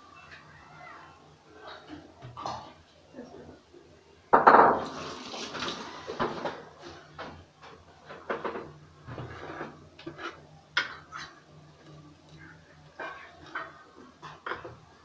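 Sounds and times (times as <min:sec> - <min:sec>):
kitchen pots and utensils clinking: 0:04.4 - 0:15.0.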